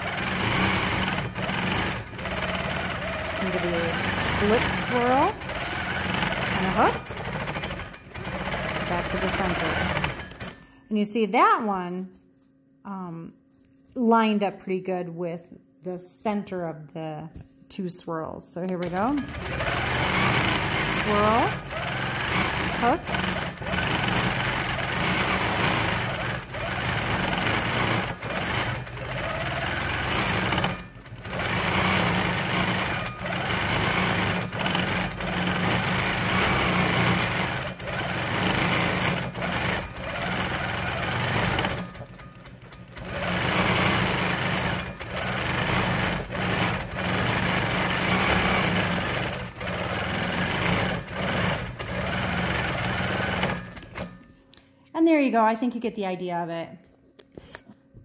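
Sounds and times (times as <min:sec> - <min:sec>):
quilting machine stitching: 0:00.0 - 0:10.8, 0:18.8 - 0:54.3.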